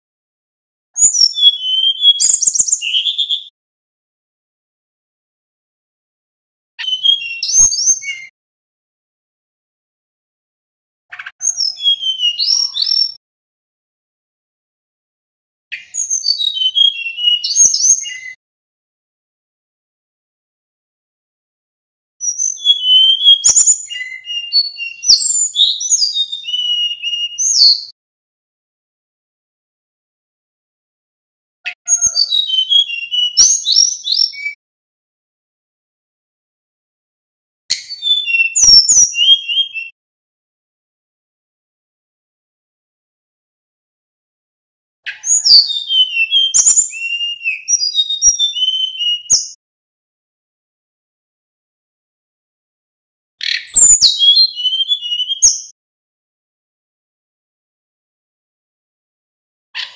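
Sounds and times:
bird singing whistled notes: 1.0s - 3.5s, 6.8s - 8.3s, 11.1s - 13.2s, 15.8s - 18.4s, 22.2s - 28.0s, 31.7s - 34.6s, 37.7s - 40.0s, 45.1s - 49.6s, 53.4s - 55.8s.

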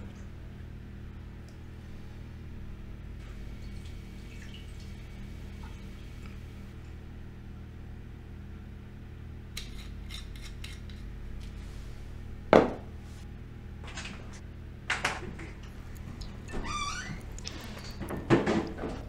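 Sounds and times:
low steady hum: 0.0s - 19.0s
knock on counter: 12.6s - 12.8s.

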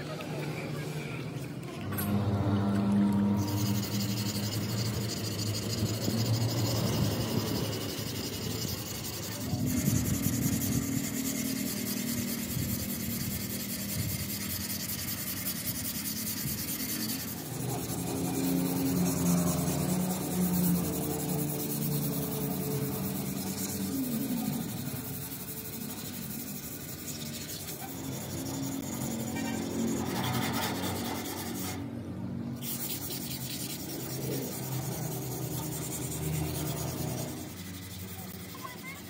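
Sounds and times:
low hum: 0.8s - 30.8s
scraping and rubbing strokes: 1.4s - 31.9s, 32.5s - 39.0s.

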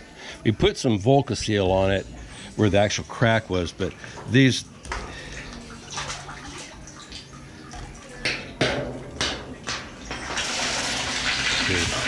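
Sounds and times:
sharp knocks: 8.3s - 10.2s.

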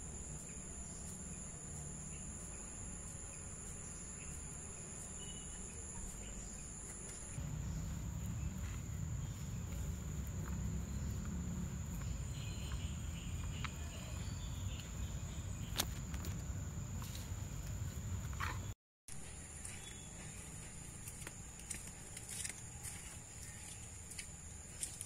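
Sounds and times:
high-pitched insect buzz: 0.0s - 16.4s.

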